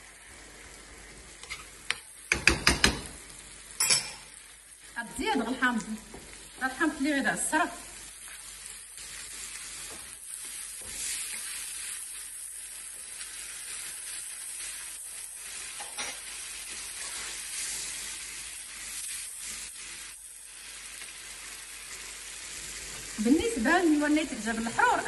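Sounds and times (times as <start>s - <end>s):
sauce sizzling in a frying pan: 0.0s - 25.0s
wooden spoon scraping a pan: 1.4s - 2.0s, 15.7s - 18.0s.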